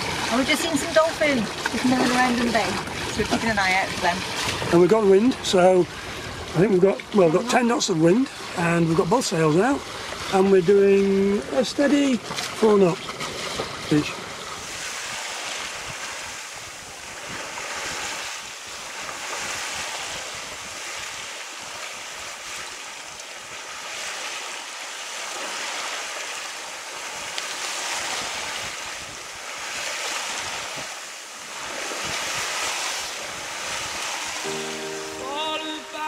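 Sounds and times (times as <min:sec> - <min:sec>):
water rushing along hull: 0:00.0 - 0:36.0
wind on microphone: 0:09.8 - 0:24.2, 0:27.1 - 0:34.6.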